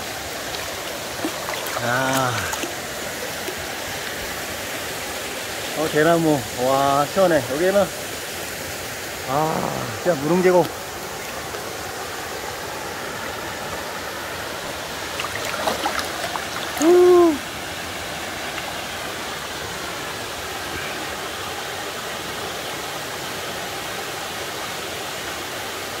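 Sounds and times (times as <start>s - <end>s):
light water splashes: 0.0s - 6.5s, 9.6s - 19.9s
stream pouring over waterfall: 0.0s - 26.0s
wordless vocal call: 1.6s - 2.8s, 9.2s - 10.1s, 16.7s - 17.4s.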